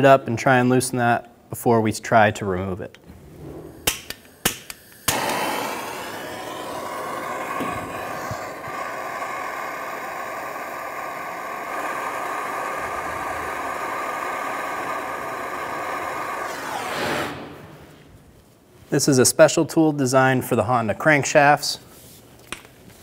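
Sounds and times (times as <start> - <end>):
torch flame hissing: 3.2 - 18.0
gas torch igniter clicks: 3.8 - 16.8.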